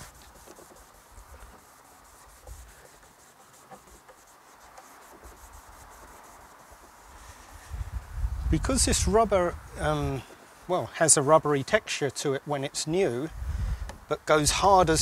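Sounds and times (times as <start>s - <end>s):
cloth rubbing on rubber seal: 0.0s - 7.8s.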